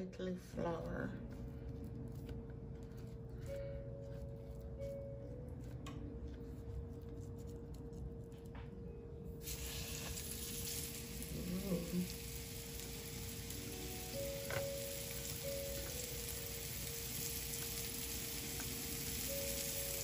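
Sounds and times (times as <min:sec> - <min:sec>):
faint steady hum: 0:00.0 - 0:20.0
fish sizzling in hot oil: 0:09.4 - 0:20.0.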